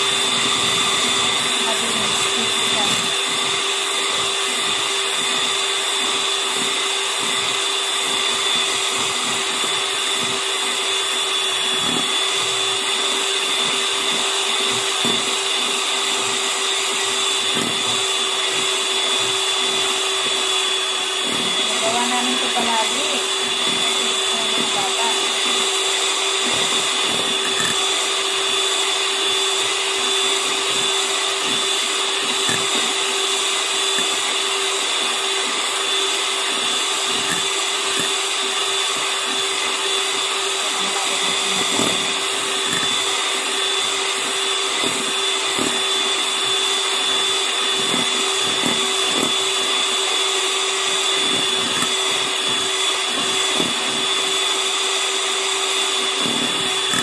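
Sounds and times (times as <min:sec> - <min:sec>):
electric hand mixer whining: 0:00.0 - 0:57.0.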